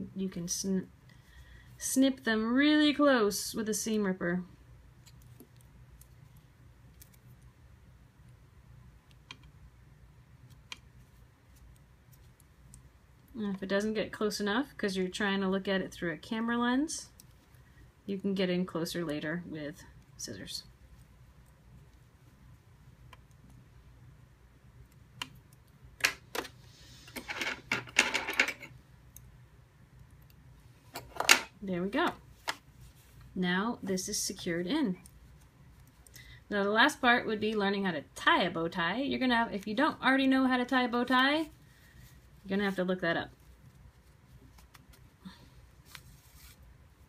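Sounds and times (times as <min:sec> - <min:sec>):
low steady hum: 0:00.0 - 0:47.0
fabric rustling: 0:32.0 - 0:36.0, 0:41.1 - 0:47.0.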